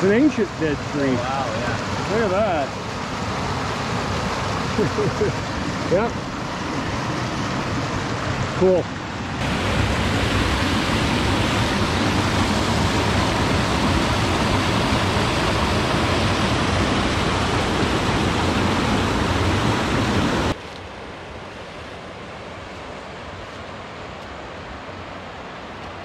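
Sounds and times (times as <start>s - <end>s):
creek flowing over rocks: 0.0s - 20.6s
whitewater rushing through rapids: 0.0s - 26.0s.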